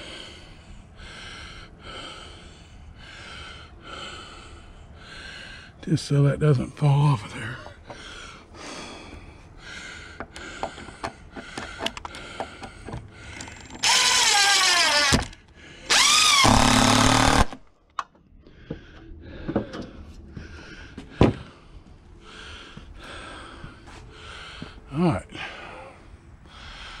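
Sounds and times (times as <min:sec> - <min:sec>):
cordless drill into wood: 0:13.8 - 0:17.6.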